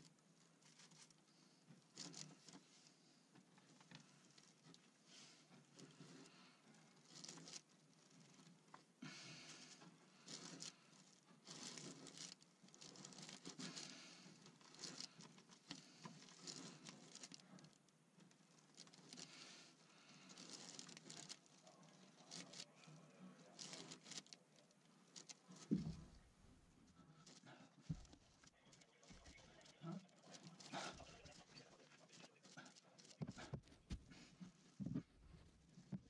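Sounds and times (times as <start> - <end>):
brush rustling and scratching: 0.0 - 36.0.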